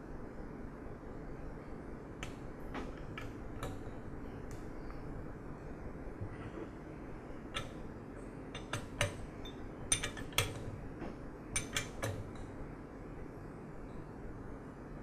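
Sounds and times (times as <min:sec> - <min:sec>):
metal wrench clinking on metal: 0:08.6 - 0:10.6.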